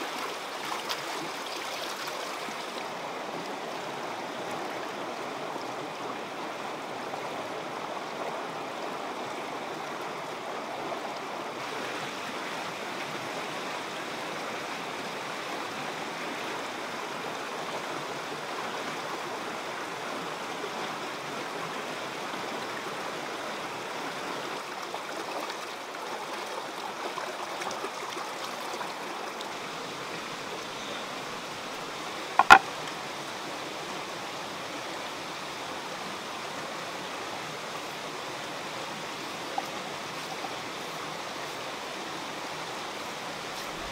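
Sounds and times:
stream running over rocks: 0.0 - 43.9
knock on wooden chopping board: 32.4 - 32.6.

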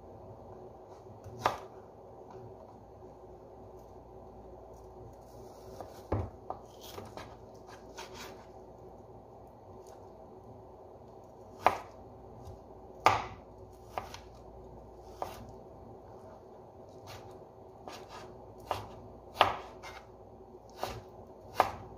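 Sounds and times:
knife chopping on cutting board: 1.2 - 1.7, 11.6 - 11.9, 13.0 - 14.3, 15.1 - 15.5, 17.9 - 20.1, 20.7 - 21.9.

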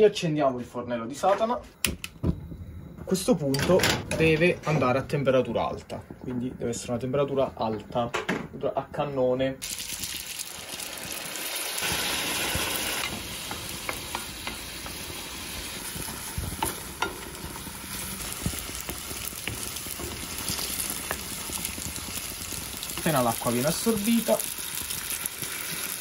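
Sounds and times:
pasta sizzling in a pan: 9.6 - 26.0
wooden spoon tapping a pan: 13.0 - 15.2, 16.0 - 17.3.

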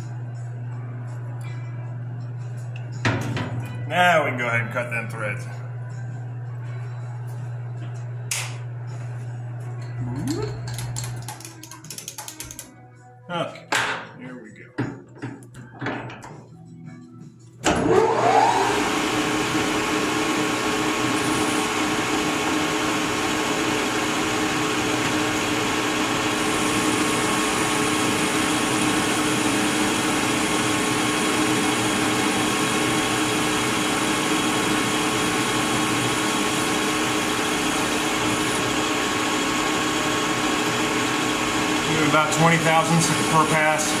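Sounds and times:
metal lathe running: 17.8 - 44.0.

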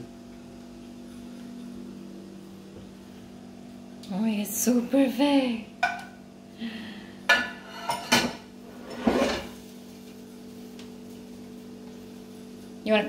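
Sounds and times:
faint steady hum: 0.0 - 13.0
metal kitchenware clanking: 7.3 - 9.6
metal scrape: 8.6 - 9.6.

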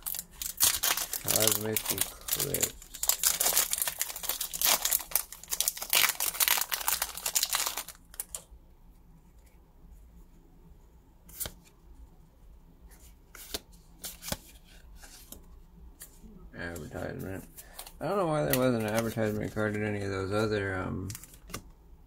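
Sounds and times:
foil wrapper tearing and crinkling: 0.0 - 8.4.

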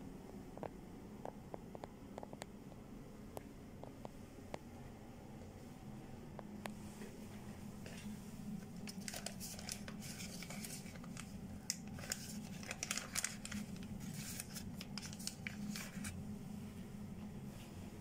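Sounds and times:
paper packets rustling and crinkling: 7.9 - 16.2.

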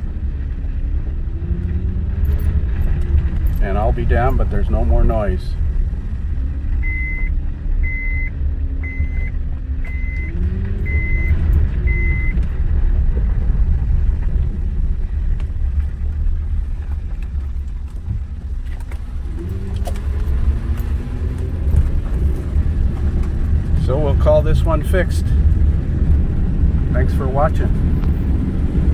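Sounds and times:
car engine accelerating: 0.0 - 28.9
road rumble inside vehicle: 0.0 - 28.9
short beeps: 6.8 - 12.4.

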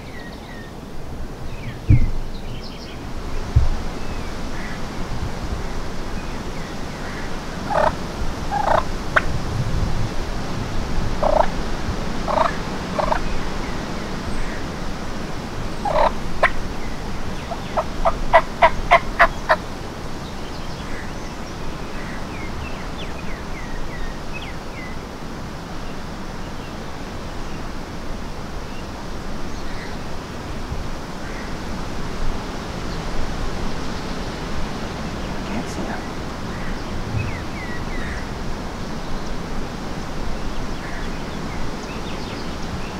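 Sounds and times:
turkeys gobbling: 7.6 - 9.3, 11.2 - 11.6, 12.3 - 13.2, 15.8 - 16.6, 17.4 - 19.6.

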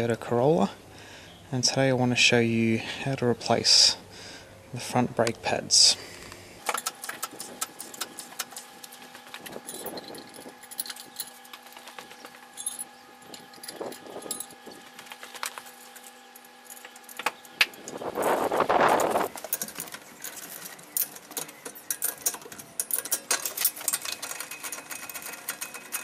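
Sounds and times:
trolley jack clicks and rattles: 6.6 - 17.9, 18.9 - 26.0.

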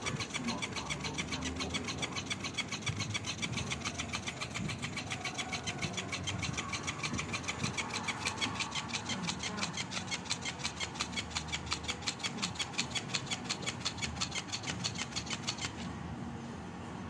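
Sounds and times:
small toy motor whirring: 0.0 - 16.0
toy tail flapping: 0.0 - 16.0.

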